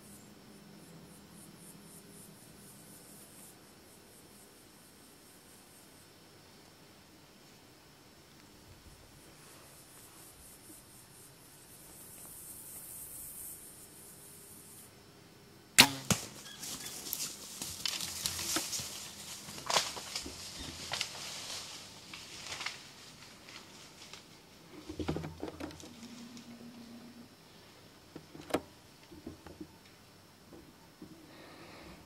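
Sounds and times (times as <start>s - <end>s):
bow release snap: 15.8s - 16.4s
deer running through brush: 16.0s - 24.3s.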